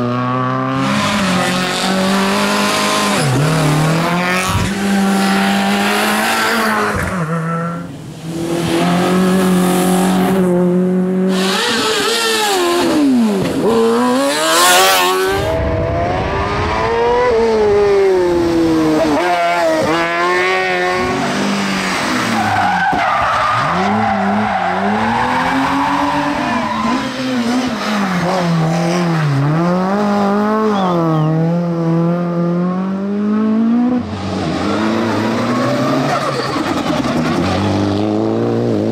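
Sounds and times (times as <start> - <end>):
race car engines revving: 0.0 - 38.9
tire squeal: 22.1 - 28.3, 34.6 - 37.8.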